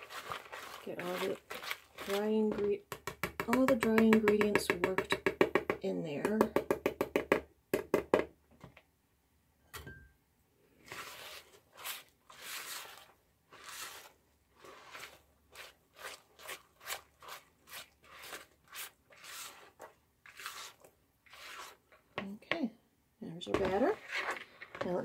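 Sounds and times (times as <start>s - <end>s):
spatula scraping batter in bowl: 0.0s - 2.8s, 10.8s - 22.1s, 23.6s - 24.9s.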